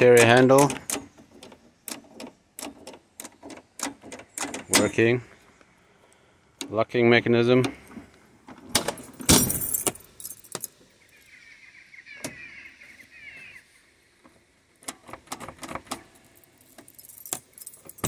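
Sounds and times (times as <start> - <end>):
keys jangling: 9.0 - 10.7, 16.0 - 18.0.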